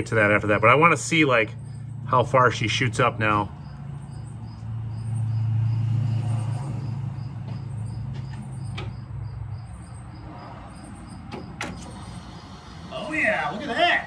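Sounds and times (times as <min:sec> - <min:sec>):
electric fuel pump humming: 0:11.0 - 0:14.0.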